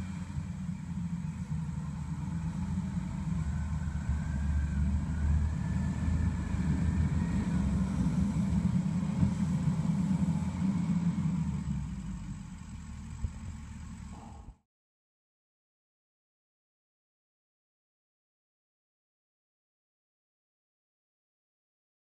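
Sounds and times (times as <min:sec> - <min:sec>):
diesel engine rumbling: 0:00.0 - 0:14.6.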